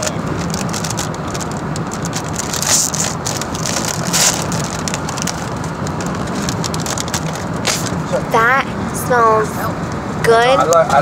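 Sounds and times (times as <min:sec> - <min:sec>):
foil chip bag crinkling: 0:00.0 - 0:08.0
road noise inside moving car: 0:00.0 - 0:11.0.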